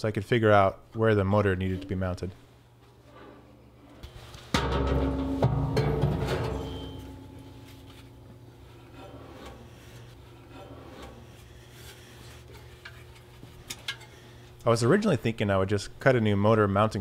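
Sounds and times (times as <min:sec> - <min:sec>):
low steady hum: 0:00.0 - 0:17.0
motor scraping against metal stand: 0:08.7 - 0:14.4.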